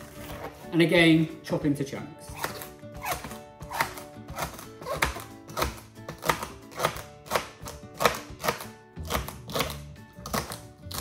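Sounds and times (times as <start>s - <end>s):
background music: 0.0s - 11.0s
knife chopping on a board: 2.3s - 11.0s.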